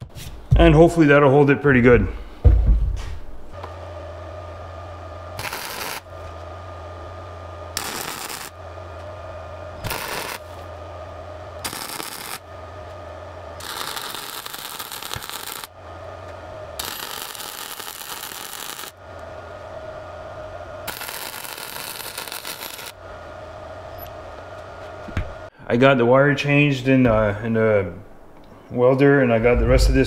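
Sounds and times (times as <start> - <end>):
welder low hum: 0.0 - 30.0
welding arc crackling: 5.2 - 6.5, 7.1 - 20.0, 20.8 - 25.5.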